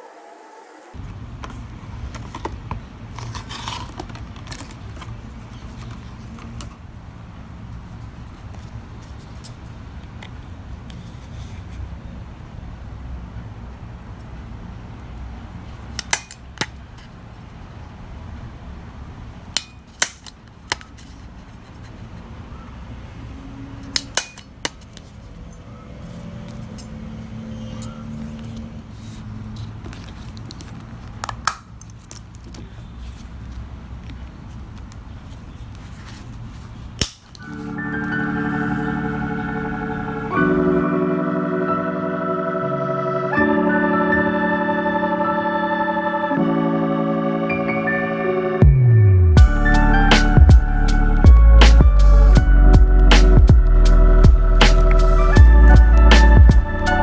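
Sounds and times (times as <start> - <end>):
steady low hum: 49.3 - 57.0.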